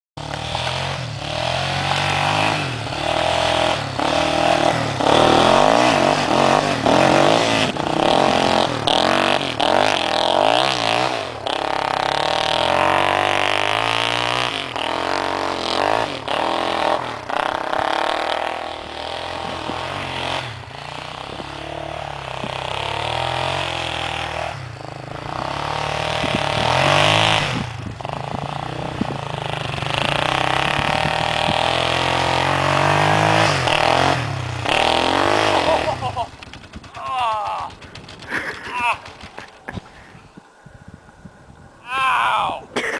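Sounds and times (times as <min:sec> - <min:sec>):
quad engine revving: 0:00.2 - 0:40.1.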